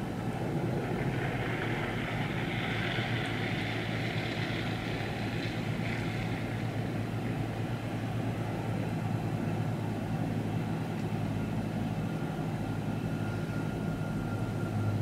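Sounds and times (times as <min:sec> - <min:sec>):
low rumble: 0:00.0 - 0:09.3
hiss: 0:00.8 - 0:06.7.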